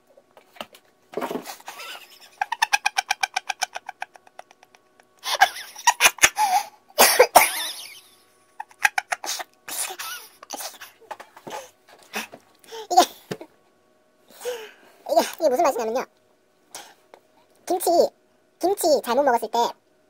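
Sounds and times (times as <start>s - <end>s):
man laughing: 1.6s - 11.0s
man coughing: 7.0s - 7.8s.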